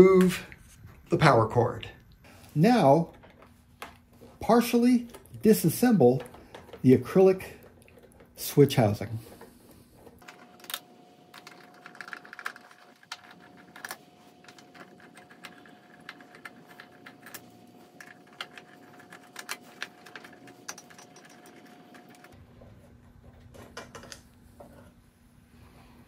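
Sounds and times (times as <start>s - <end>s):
faint steady whine: 0.0s - 26.0s
plastic parts handled: 5.0s - 22.3s.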